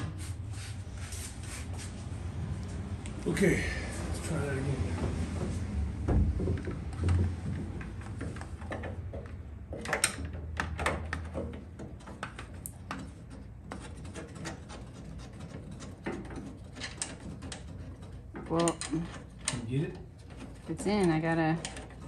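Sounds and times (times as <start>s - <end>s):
metal parts clicking and knocking: 6.6s - 22.0s.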